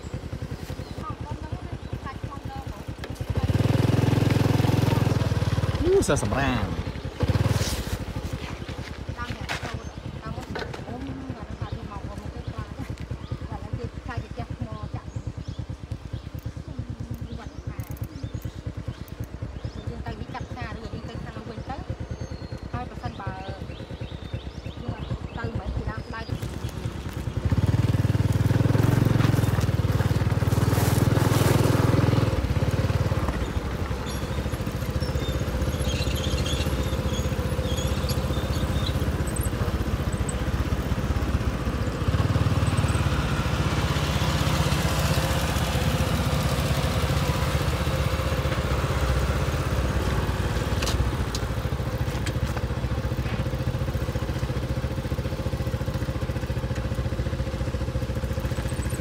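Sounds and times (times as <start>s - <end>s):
bicycle tyres crunching on gravel: 3.1s - 10.3s, 26.3s - 58.9s.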